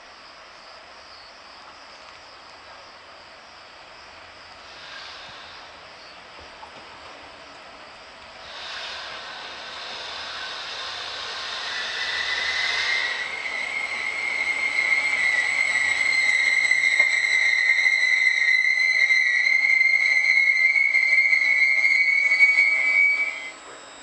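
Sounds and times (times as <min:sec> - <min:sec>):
train coaches rumbling: 0:03.7 - 0:24.0
high-pitched wheel squeal: 0:09.8 - 0:24.0.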